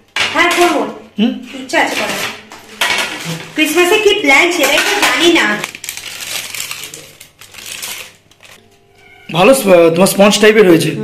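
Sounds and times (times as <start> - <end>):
baking paper rustling: 3.0 - 8.6.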